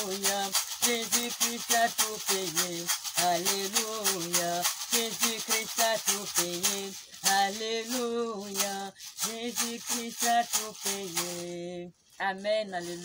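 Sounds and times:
hand shaker rattling: 0.0s - 13.0s
woman singing a slow hymn: 5.2s - 13.0s.

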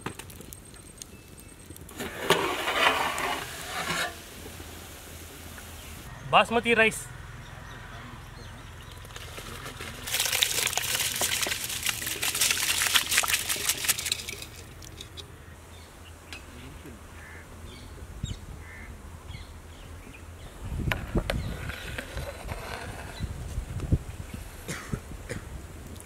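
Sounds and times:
rice pouring into boiling water: 10.0s - 14.9s.

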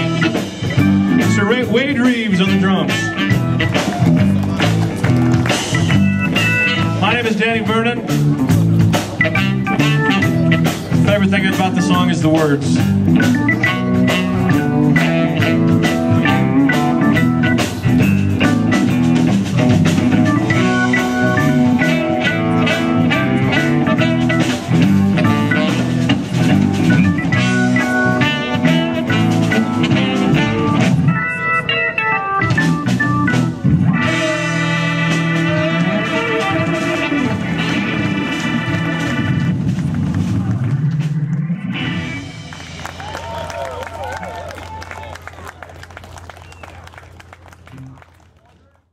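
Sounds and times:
saxophone: 0.0s - 1.4s, 2.4s - 7.2s, 8.6s - 11.2s, 12.8s - 39.8s
electric guitar: 0.0s - 12.0s, 12.6s - 43.4s
drum kit: 0.0s - 44.5s
keyboard: 0.0s - 48.8s
bass guitar: 0.0s - 48.9s.

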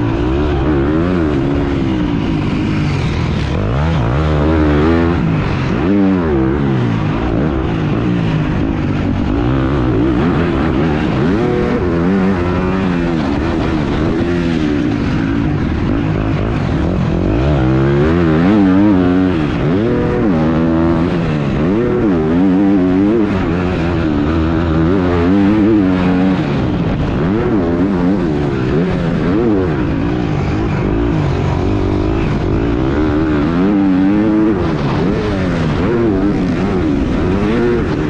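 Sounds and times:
motocross bike engine revving: 0.0s - 38.0s.

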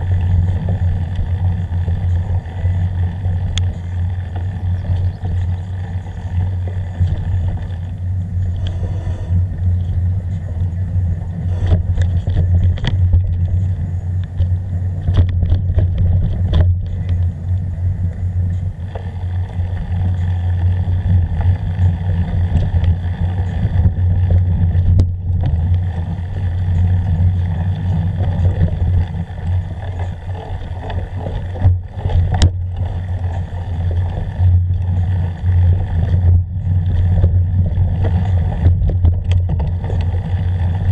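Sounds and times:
wind and ride rumble: 0.0s - 40.9s
knocks and rattles over bumps: 14.3s - 17.3s, 20.7s - 40.9s.

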